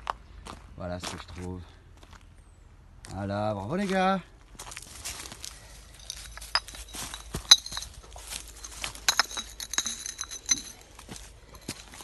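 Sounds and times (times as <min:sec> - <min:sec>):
crunching of dry leaves and gravel: 0:00.0 - 0:02.3, 0:03.0 - 0:12.0
broken glass clinking on stones: 0:05.9 - 0:10.9.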